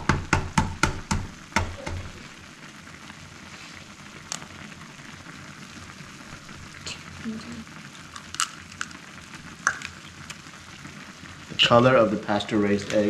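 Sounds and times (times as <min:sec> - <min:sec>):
soup sizzling and bubbling: 0:00.0 - 0:13.0
egg tapping on skillet rim: 0:00.1 - 0:02.2, 0:09.6 - 0:10.0
eggshell cracking: 0:07.9 - 0:10.5.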